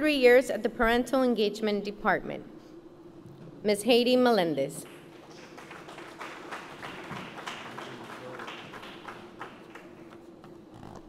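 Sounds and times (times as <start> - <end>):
audience clapping: 4.8 - 10.6.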